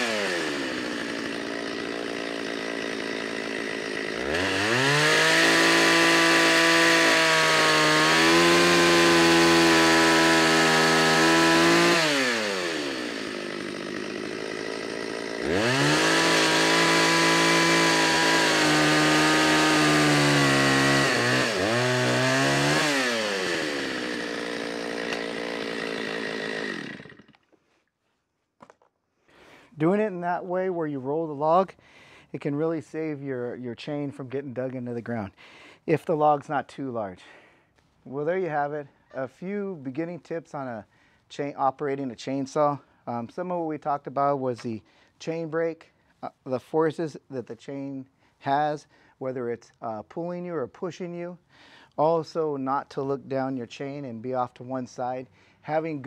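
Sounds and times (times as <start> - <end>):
chainsaw idling and revving: 0.0 - 27.5, 54.4 - 56.0
chainsaw cutting log: 0.0 - 27.6, 53.2 - 56.0.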